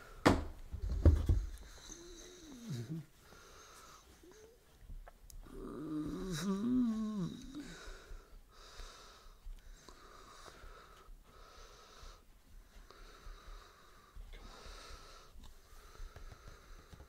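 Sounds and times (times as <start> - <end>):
person breathing close to microphone: 1.3 - 4.8, 5.4 - 17.0
person humming: 1.9 - 3.1, 5.4 - 8.0.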